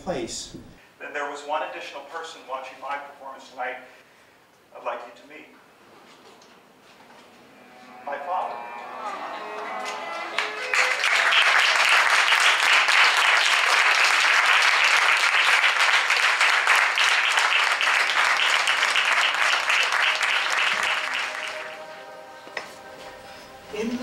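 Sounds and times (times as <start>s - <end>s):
audience applauding: 9.0s - 22.1s.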